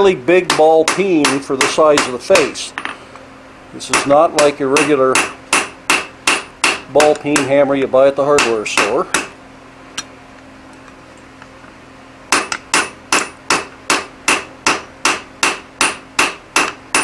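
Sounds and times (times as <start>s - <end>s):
hammer striking hot metal on anvil: 0.4s - 2.5s, 3.9s - 7.6s, 8.4s - 9.3s, 12.3s - 17.0s.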